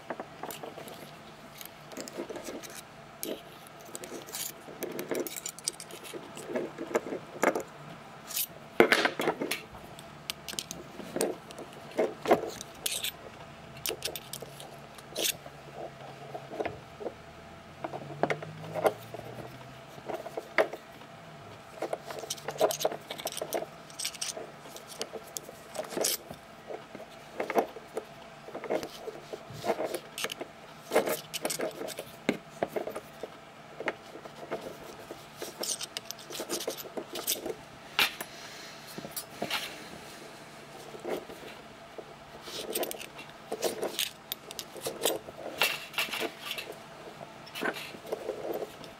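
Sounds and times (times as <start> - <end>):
metal scraping and rubbing: 10.5 - 13.2.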